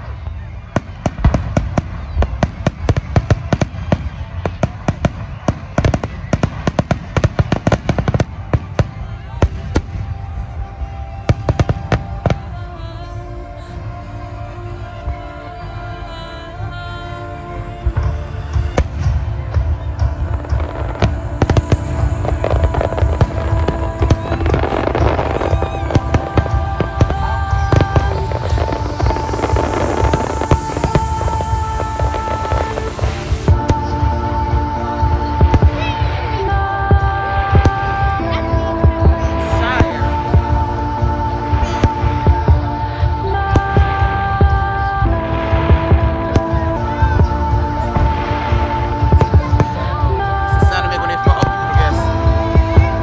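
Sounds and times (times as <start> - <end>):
fireworks bangs and pops: 0.0 - 10.2, 19.0 - 34.0
music playing: 0.0 - 53.0
steady low rumble: 0.0 - 53.0.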